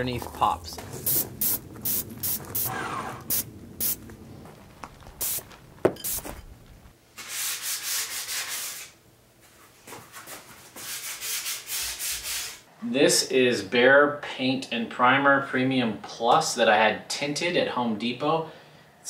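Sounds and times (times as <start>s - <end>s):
aerosol spray hissing: 1.0s - 4.0s, 5.2s - 5.4s
sanding pad rasping on metal: 10.8s - 12.6s.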